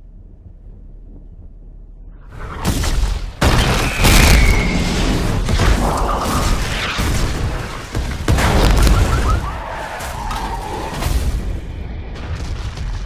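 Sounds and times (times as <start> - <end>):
deep continuous rumble: 0.0 - 3.5
heavy explosions and booming impacts: 0.1 - 13.0
falling whistle: 8.8 - 9.6.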